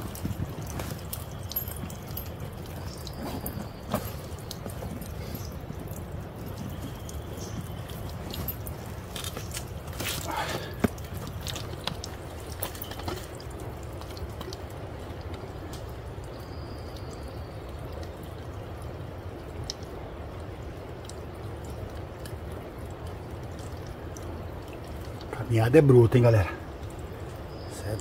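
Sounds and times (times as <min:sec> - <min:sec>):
water trickling and dripping: 0:00.0 - 0:28.0.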